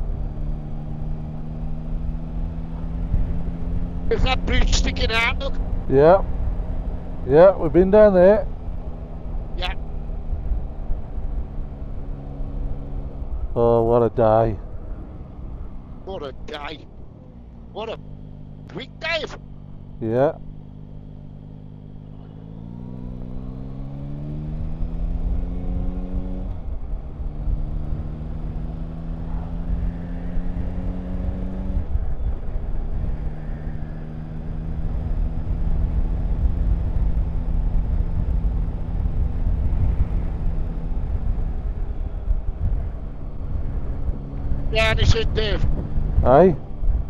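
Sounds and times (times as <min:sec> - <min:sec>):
motorcycle engine accelerating: 0:00.0 - 0:47.0
wind rumble on microphone: 0:34.7 - 0:47.0.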